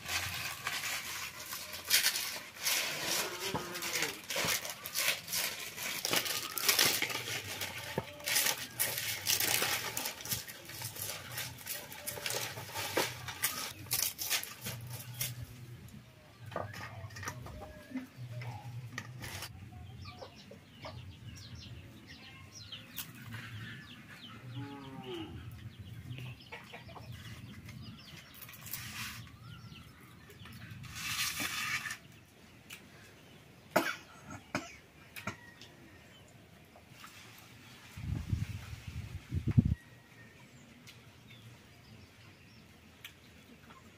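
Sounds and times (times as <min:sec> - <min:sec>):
dry leaves crackling and tearing: 0:00.0 - 0:15.6, 0:28.3 - 0:29.6, 0:30.8 - 0:32.0
chickens clucking: 0:16.4 - 0:22.0, 0:22.8 - 0:29.7.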